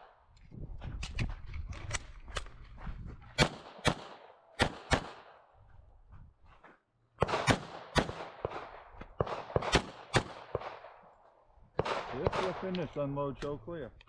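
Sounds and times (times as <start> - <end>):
pistol shots: 3.4 - 5.4, 7.2 - 11.0, 11.8 - 12.8.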